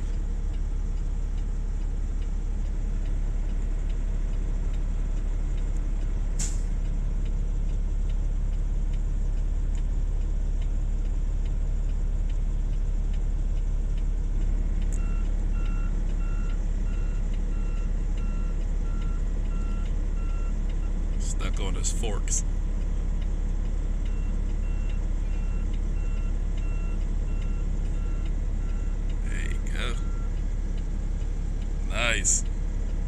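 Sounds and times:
heavy equipment diesel rumble: 0.0 - 33.0
backup alarm beeping: 24.1 - 30.4.

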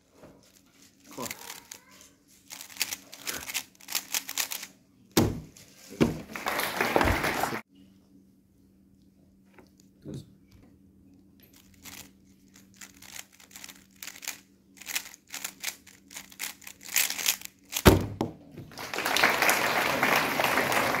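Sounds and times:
applause: 6.2 - 7.6, 18.7 - 21.0
puzzle cube layers clicking: 12.8 - 17.8.

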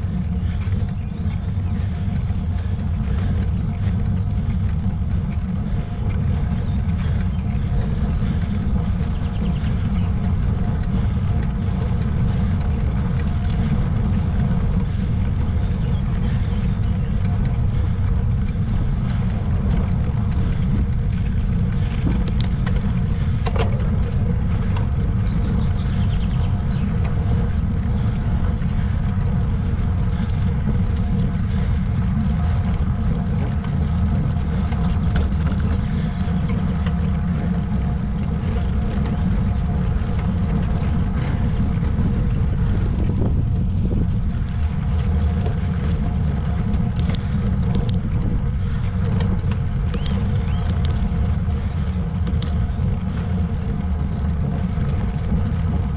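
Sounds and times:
faint steady hum: 0.0 - 55.9
wind rumble on microphone: 0.0 - 55.9
light clicks: 49.1 - 51.1.

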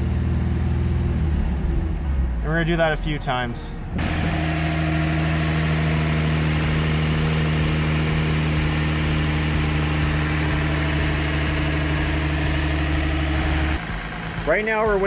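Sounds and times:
car engine running steadily: 0.0 - 15.0.

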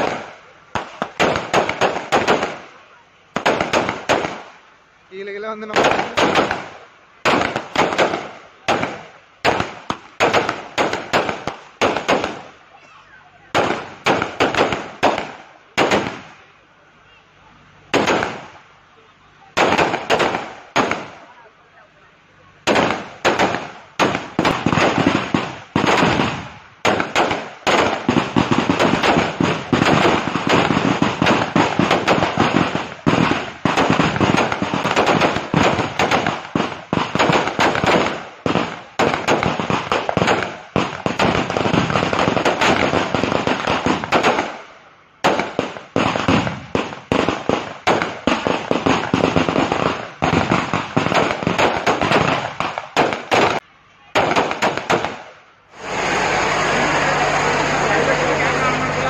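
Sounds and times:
firecrackers banging: 0.0 - 59.0.

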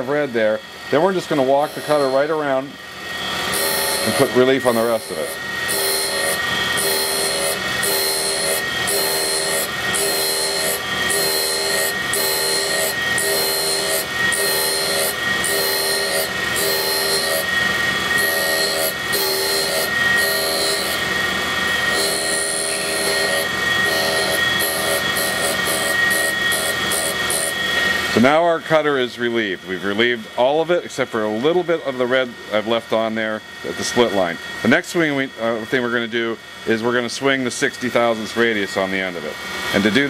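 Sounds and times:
pulsing grinding rasp: 0.0 - 28.4
grinding wheel whining: 0.0 - 40.0.

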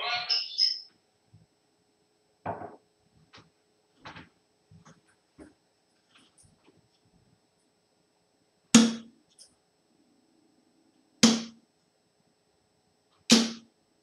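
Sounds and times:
darts striking a dartboard: 8.8 - 9.1, 11.2 - 11.6, 13.3 - 13.7.

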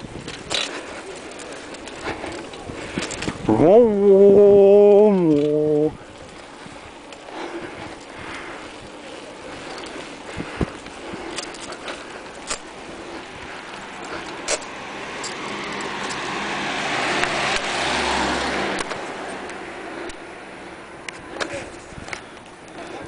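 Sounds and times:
car passing by: 12.9 - 21.6.

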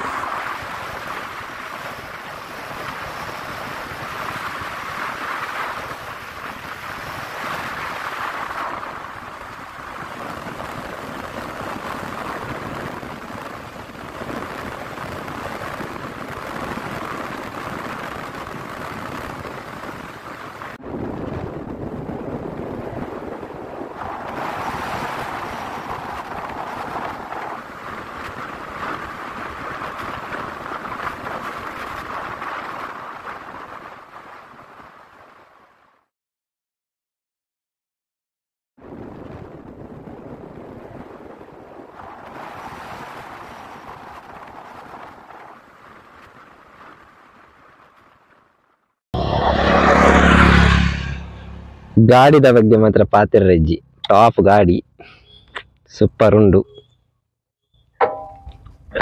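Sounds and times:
wind rushing over microphone: 0.0 - 35.6, 38.8 - 48.0.

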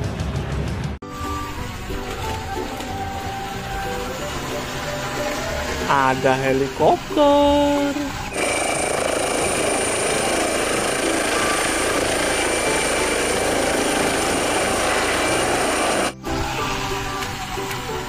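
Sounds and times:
high turbine whine: 1.1 - 18.0
helicopter rotor noise: 4.2 - 18.0.

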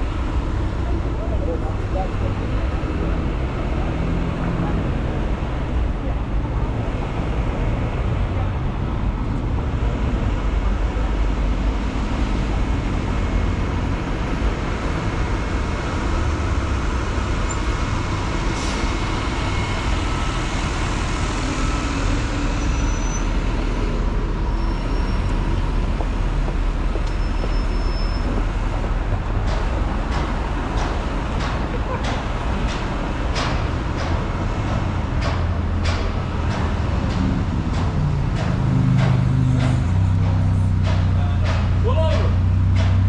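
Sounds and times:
road vehicles passing: 0.0 - 43.0.

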